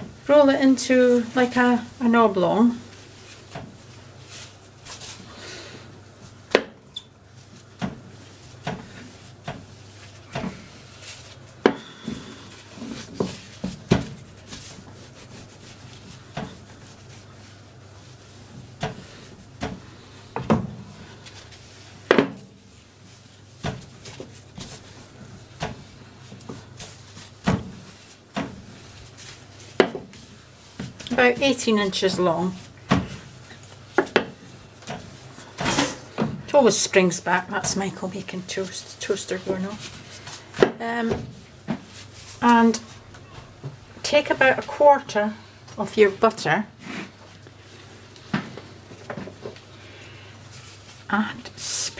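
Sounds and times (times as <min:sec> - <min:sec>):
soft rubbing of dough: 0:00.0 - 0:51.9
rolling pin knocking on surface: 0:29.8 - 0:30.1.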